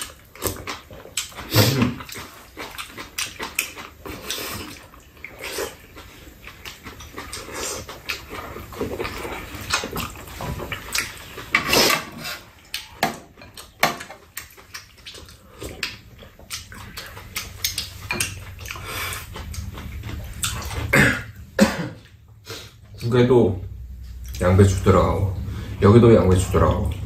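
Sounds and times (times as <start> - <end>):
chewing and slurping: 0.0 - 21.4.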